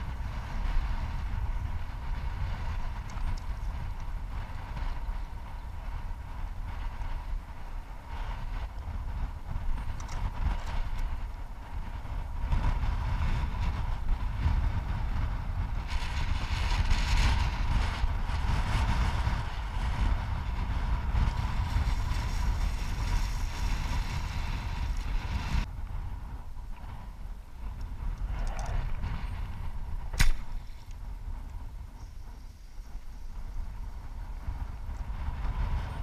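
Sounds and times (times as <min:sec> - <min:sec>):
wind buffeting microphone: 0:00.0 - 0:36.0
sharp click: 0:30.1 - 0:31.0.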